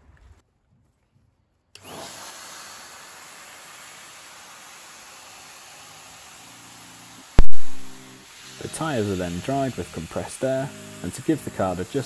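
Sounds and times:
compressed air hissing: 7.0s - 12.0s.

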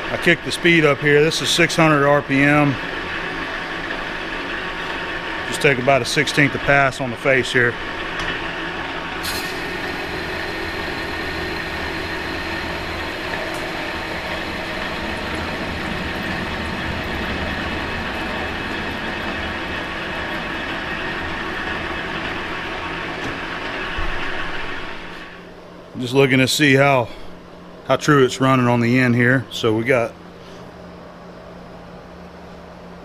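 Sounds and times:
metal lathe whirring: 0.1s - 25.5s
lathe tool cutting metal: 8.7s - 25.3s.

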